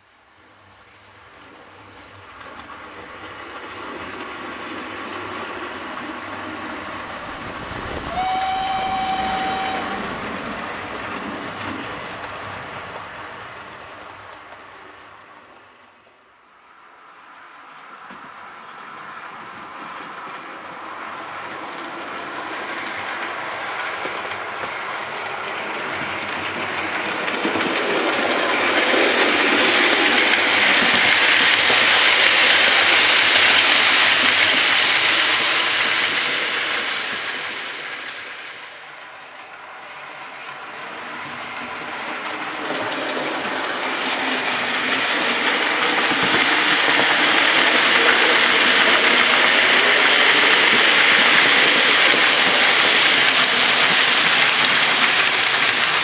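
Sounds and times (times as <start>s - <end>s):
model train wheels rattling on rails: 21.3s - 38.8s, 40.4s - 56.0s.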